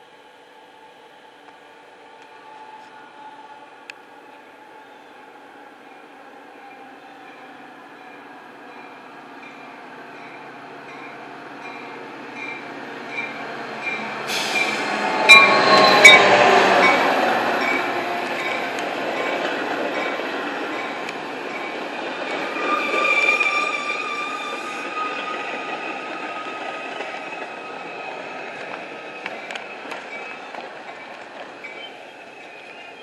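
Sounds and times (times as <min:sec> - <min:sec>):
diesel locomotive passing: 0:00.3 - 0:33.0
train cars rolling by: 0:08.7 - 0:33.0
high-pitched brake squeal: 0:13.2 - 0:17.0, 0:20.8 - 0:30.5.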